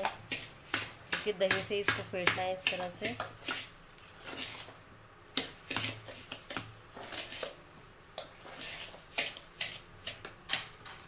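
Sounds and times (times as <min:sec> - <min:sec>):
metal spoon scraping steel bowl: 0:02.6 - 0:04.7, 0:05.6 - 0:07.6, 0:08.4 - 0:10.3.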